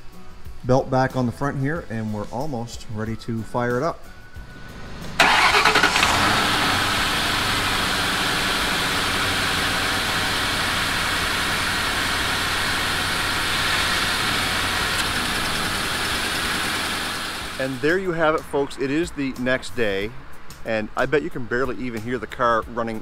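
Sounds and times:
car engine starting and idling: 0:04.4 - 0:18.8.

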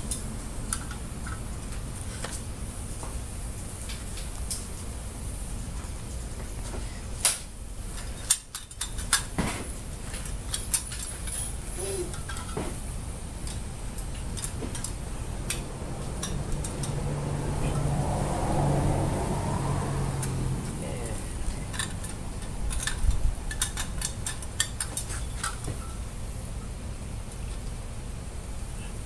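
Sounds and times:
camp gear clicks and clinks: 0:21.4 - 0:25.9.

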